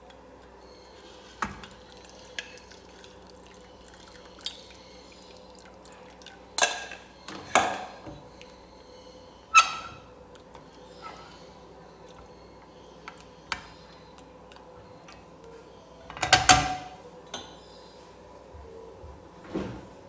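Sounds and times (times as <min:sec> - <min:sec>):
milk pouring: 0:00.9 - 0:08.6.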